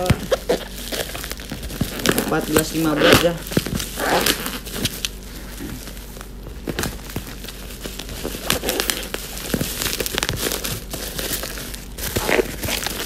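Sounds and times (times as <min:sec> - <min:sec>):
plastic bag crinkling: 0:00.0 - 0:13.0.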